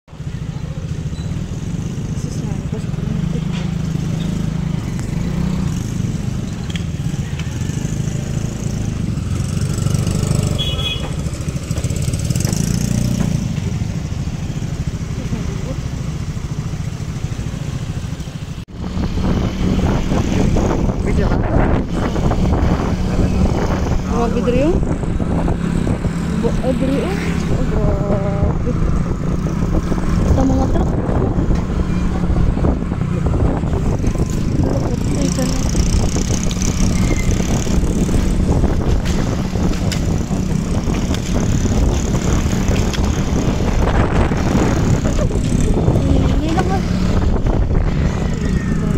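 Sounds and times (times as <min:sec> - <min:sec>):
vehicle engine and road noise: 0:00.0 - 0:48.9
wind on microphone: 0:18.8 - 0:48.9.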